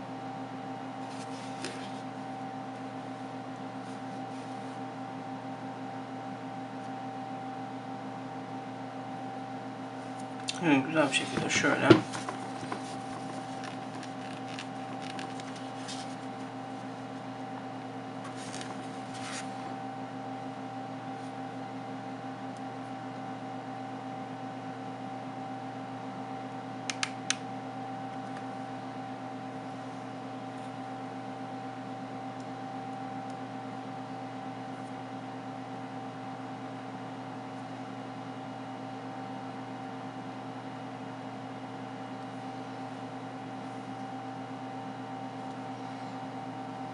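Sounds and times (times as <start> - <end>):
fan-like hum with held tones: 0.0 - 46.9
phone handling clicks: 26.9 - 27.4.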